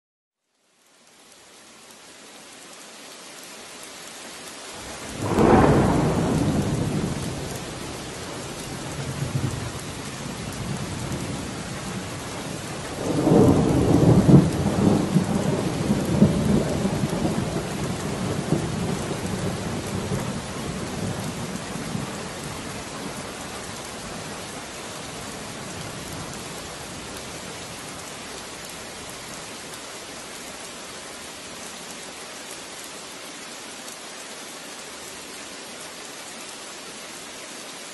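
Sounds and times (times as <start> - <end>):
steady rain hissing: 0.4 - 37.9
thunder rolling: 5.0 - 7.8.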